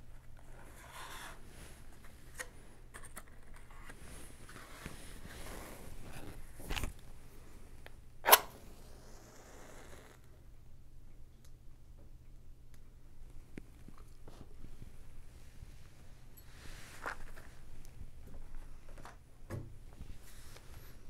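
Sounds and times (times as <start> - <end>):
rustling: 0.3 - 10.2
match flaring hiss: 8.2 - 10.3
wooden match struck: 8.2 - 10.3.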